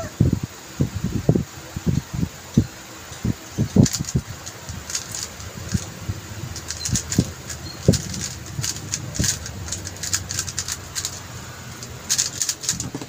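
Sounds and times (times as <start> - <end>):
puzzle cube plastic clicks: 3.6 - 13.0.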